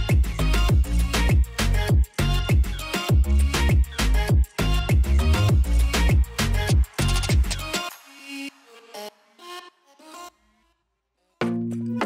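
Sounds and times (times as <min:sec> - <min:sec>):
music with heavy bass beat: 0:00.0 - 0:09.2.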